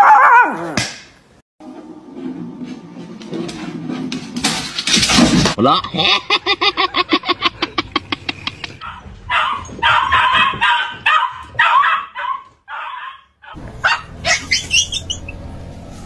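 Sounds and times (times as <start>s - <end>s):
dog yelping and barking: 0.0s - 0.8s, 8.8s - 15.4s.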